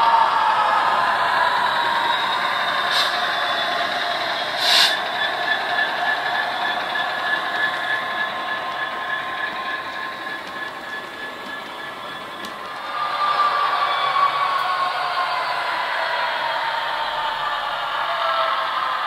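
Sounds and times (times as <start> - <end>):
diesel locomotive engine through speaker: 0.0 - 19.0
brief hiss: 4.6 - 5.0.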